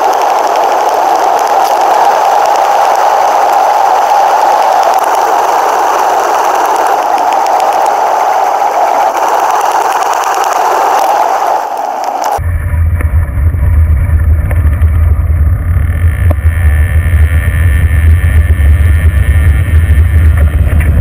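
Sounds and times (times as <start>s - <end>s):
wind rushing hiss: 0.0s - 12.4s.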